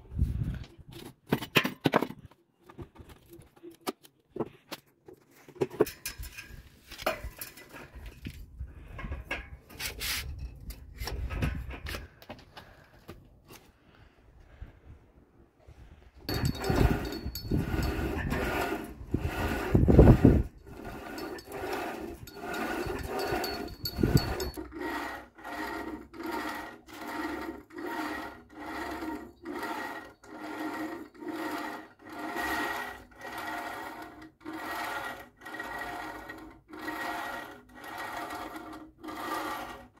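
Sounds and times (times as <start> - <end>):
cable squeaking over pulleys: 16.3 - 40.0.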